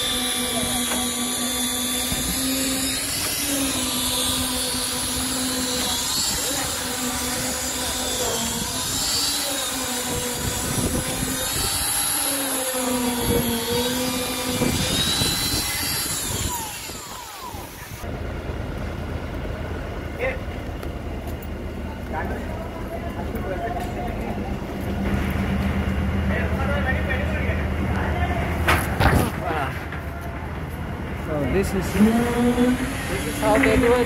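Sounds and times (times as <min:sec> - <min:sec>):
diesel engine running under load: 0:17.5 - 0:34.0.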